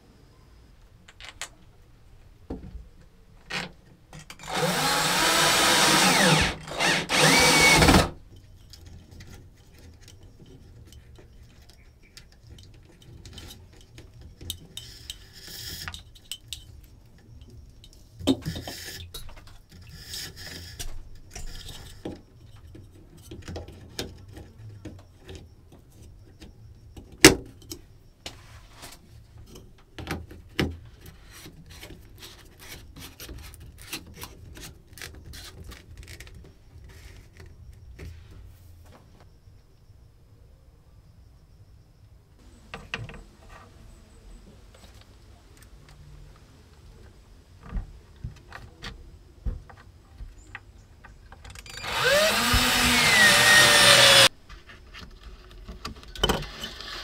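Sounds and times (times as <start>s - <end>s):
power drill running: 4.4s - 8.2s, 51.7s - 54.3s.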